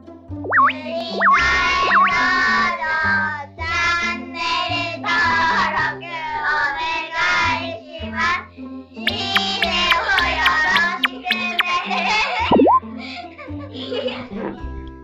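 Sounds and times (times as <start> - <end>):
quick pitch swoops: 0.4 - 2.6, 9.1 - 11.8, 12.5 - 12.8
stepping bass line: 0.5 - 2.3, 9.1 - 11.7, 12.5 - 12.8.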